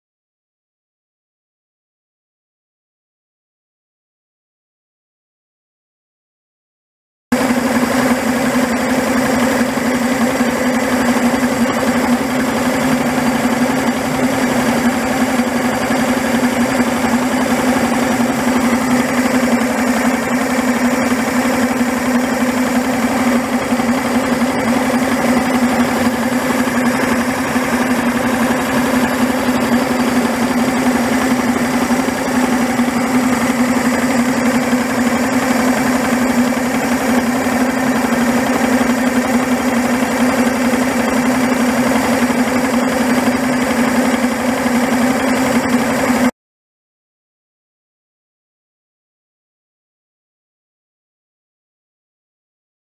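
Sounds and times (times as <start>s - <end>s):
outboard motor idling: 7.3s - 46.3s.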